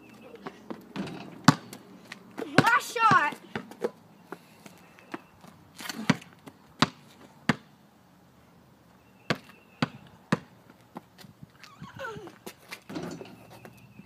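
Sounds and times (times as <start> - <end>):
basketball bouncing on concrete: 0.4 - 3.9, 6.0 - 7.7, 9.2 - 11.0.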